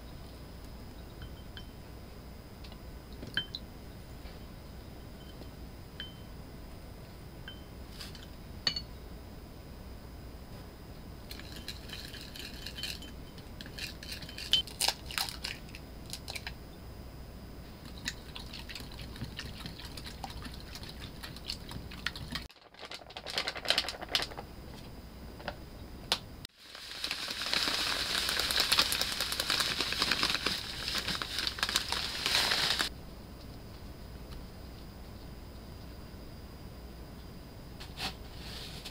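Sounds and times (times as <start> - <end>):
metal spoon clinking on ceramic cup: 8.7 - 8.9
wire whisk beating eggs in glass bowl: 17.8 - 22.5.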